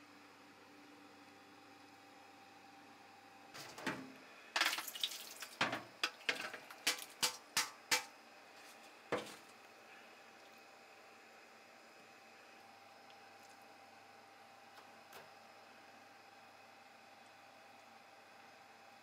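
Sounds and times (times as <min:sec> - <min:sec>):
bowl and colander clattering in sink: 0:03.6 - 0:08.1.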